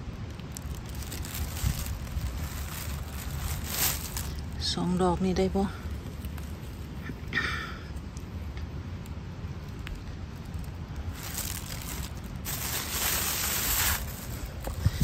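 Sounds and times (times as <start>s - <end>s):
rustling through grass: 0.0s - 7.1s, 10.2s - 15.0s
wind rumble: 0.0s - 7.3s, 7.9s - 15.0s.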